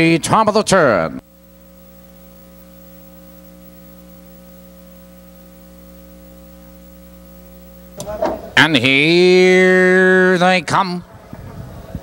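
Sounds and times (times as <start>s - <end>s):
electrical mains hum: 0.0s - 12.0s
race commentary voice: 8.6s - 11.1s.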